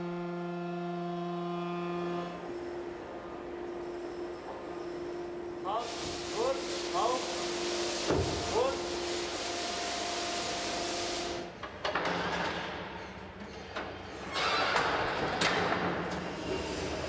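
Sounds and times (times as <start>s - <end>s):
machinery low hum: 0.0s - 9.7s
machinery hiss with faint whine: 4.8s - 11.5s.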